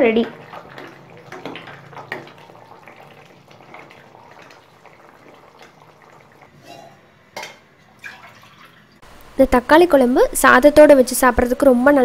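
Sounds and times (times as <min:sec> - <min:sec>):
ladle stirring and scraping curry: 0:00.1 - 0:07.1.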